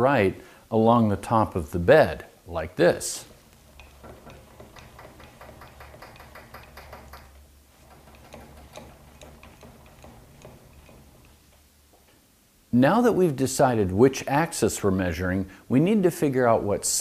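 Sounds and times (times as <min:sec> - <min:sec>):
lathe handwheel gear clicks: 0:03.3 - 0:11.6.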